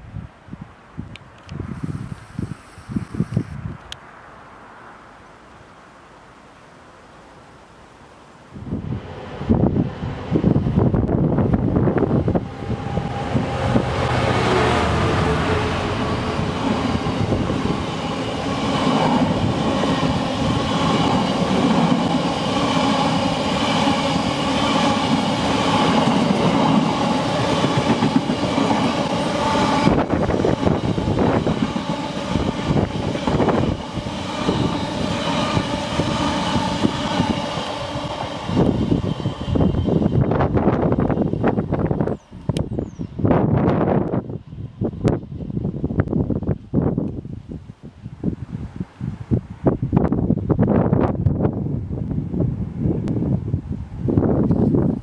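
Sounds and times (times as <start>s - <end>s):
diesel locomotive passing: 8.6s - 47.0s
train wheels rumbling and clattering: 8.9s - 42.7s.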